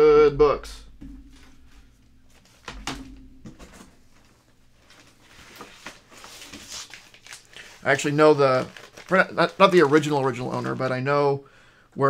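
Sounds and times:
low steady hum: 0:00.0 - 0:10.3
handling knocks and rustles: 0:00.8 - 0:07.8.

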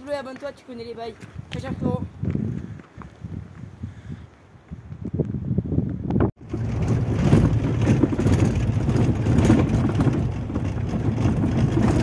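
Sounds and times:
engine and tyre rumble: 0:06.1 - 0:12.0
stones crackling under wheels: 0:06.4 - 0:12.0.

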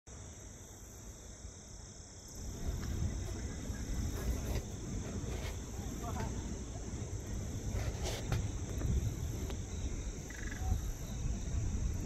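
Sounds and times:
insects droning: 0:00.1 - 0:12.0.

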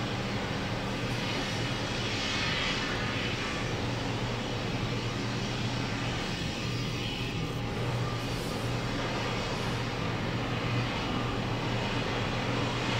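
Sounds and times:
heavy machinery engine drone: 0:00.0 - 0:12.9.

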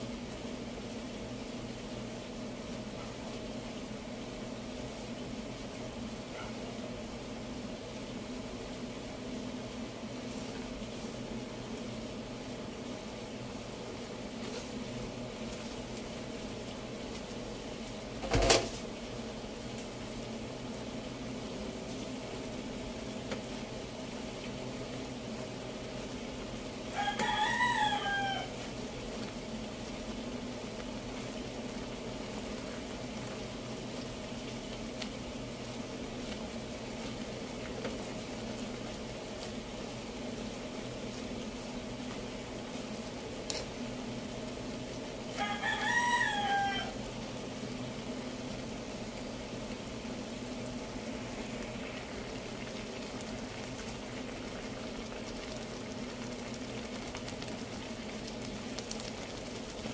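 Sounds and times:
rooster crowing: 0:26.9 - 0:28.7, 0:45.3 - 0:47.1.

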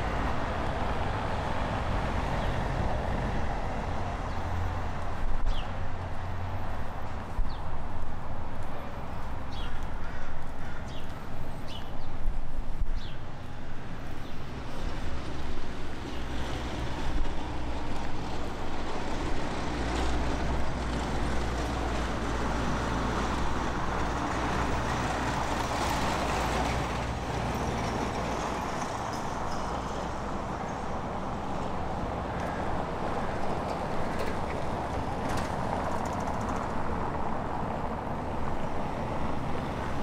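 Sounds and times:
vehicle engine rumbling: 0:00.0 - 0:40.0.

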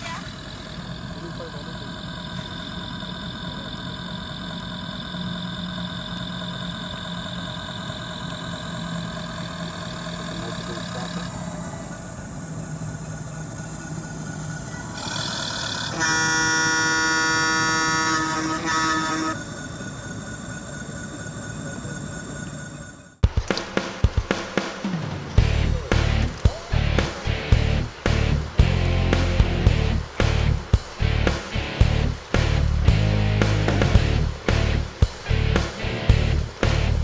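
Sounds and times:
simulated tugboat engine: 0:00.0 - 0:37.0
ship's horn blast: 0:15.0 - 0:19.5.

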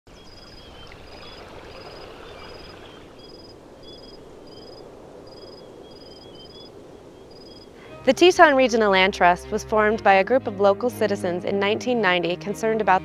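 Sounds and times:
flowing water rush: 0:00.1 - 0:09.1
lower wavering chirps: 0:00.2 - 0:08.1.

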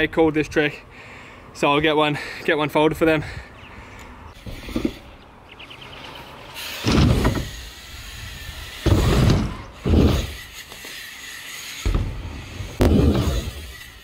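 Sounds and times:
bike tyres rolling on ramps: 0:04.4 - 0:14.0.

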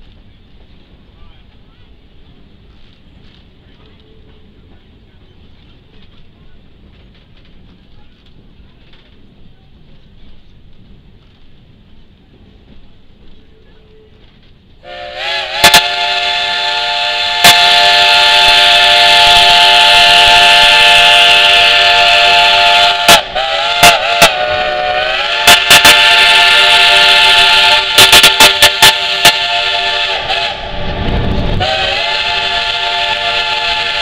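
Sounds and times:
steam locomotive whistle: 0:14.8 - 0:34.0.

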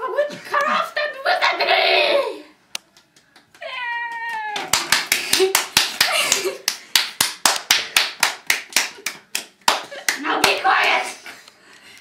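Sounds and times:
people clapping in rhythm: 0:02.8 - 0:11.2.

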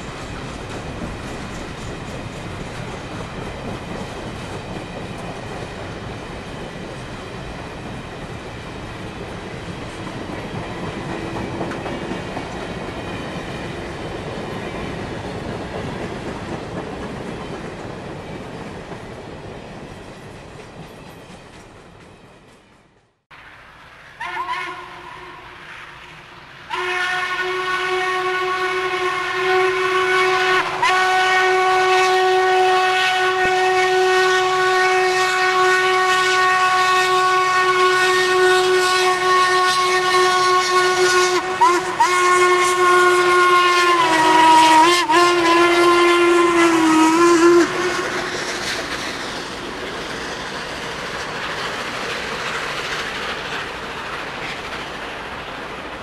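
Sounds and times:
steam locomotive passing: 0:00.0 - 0:56.0
steam whistle blowing: 0:24.2 - 0:26.0, 0:26.6 - 0:48.9.

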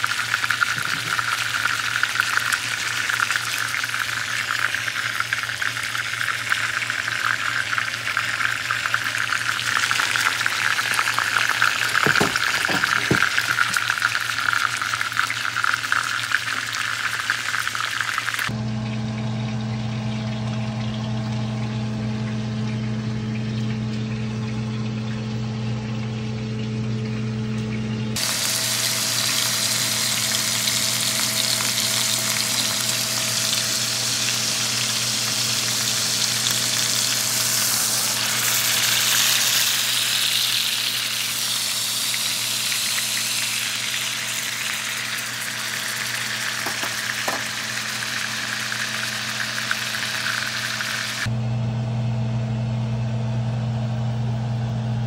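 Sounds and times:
meat sizzling in hot oil: 0:00.0 - 0:18.6, 0:28.2 - 0:51.3.

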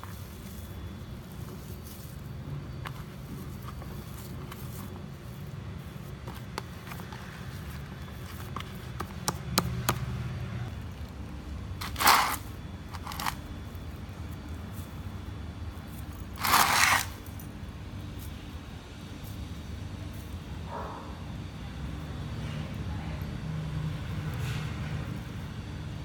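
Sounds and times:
plastic bowl scraping concrete: 0:11.8 - 0:13.4, 0:16.3 - 0:17.2.

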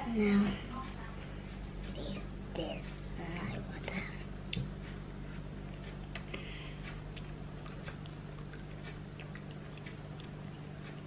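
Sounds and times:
steady low hum: 0:00.0 - 0:11.0
chewing with mouth clicks: 0:05.7 - 0:11.0.

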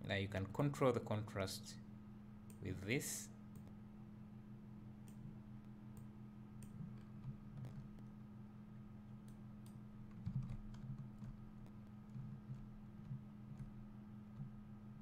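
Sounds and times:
steady low hum: 0:00.0 - 0:15.0
computer mouse clicks: 0:05.9 - 0:08.1, 0:09.2 - 0:14.5.

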